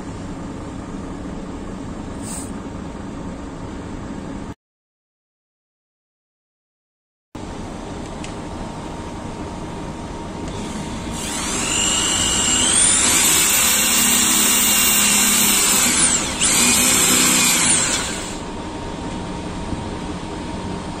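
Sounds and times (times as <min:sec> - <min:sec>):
steady background hum: 0:00.0 - 0:04.6, 0:07.4 - 0:21.0
power drill motor whine: 0:10.4 - 0:18.6.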